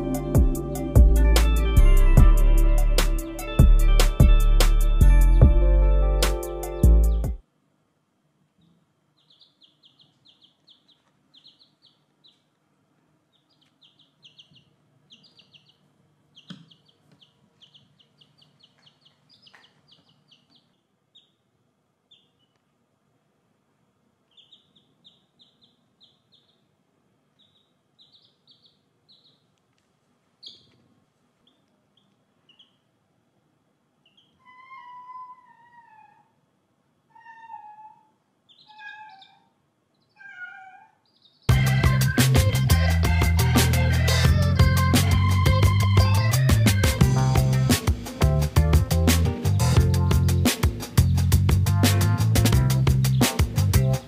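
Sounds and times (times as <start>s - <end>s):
baby chicks peeping: 8.6s - 12.6s, 13.3s - 21.5s, 22.1s - 22.6s, 24.3s - 29.6s, 30.4s - 30.8s, 31.4s - 32.9s, 34.0s - 36.4s, 37.2s - 48.2s, 49.4s - 54.0s.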